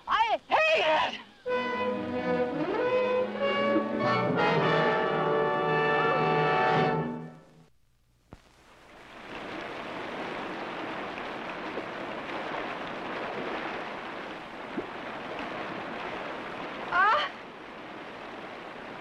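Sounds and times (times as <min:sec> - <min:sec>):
stream splashing over stones: 0:08.9 - 0:19.0.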